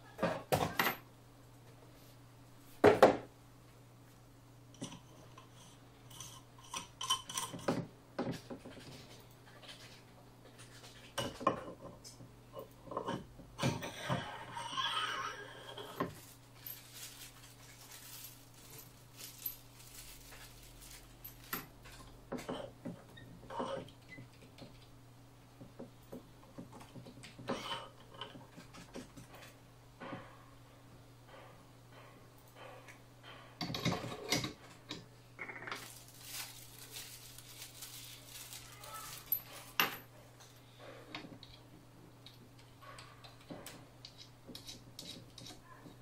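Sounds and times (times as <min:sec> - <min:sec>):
metal parts clinking: 0:15.7 - 0:22.1
knocks and clatter of parts: 0:15.8 - 0:24.8, 0:31.3 - 0:35.1
plastic bag crinkling: 0:16.0 - 0:21.6, 0:35.7 - 0:39.8.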